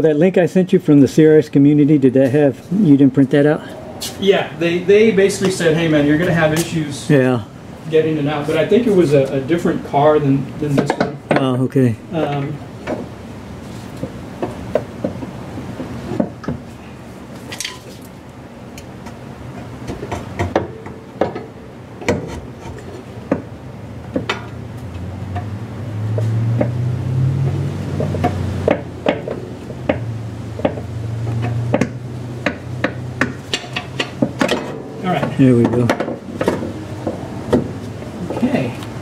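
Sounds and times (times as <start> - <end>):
low steady hum: 0.8 - 26.1.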